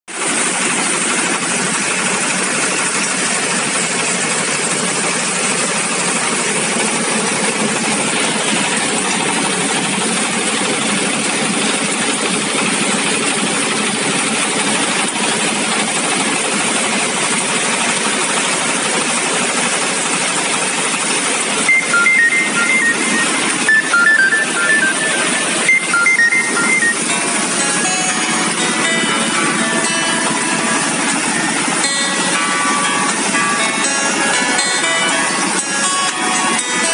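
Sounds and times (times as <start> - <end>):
rice milling machine running: 0.1 - 36.9
bright electronic music notes: 21.6 - 36.9.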